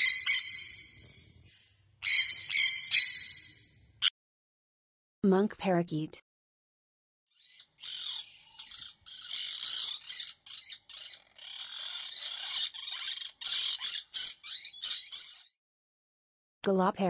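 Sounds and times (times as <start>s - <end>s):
parakeets chattering and squawking: 7.3s - 15.6s.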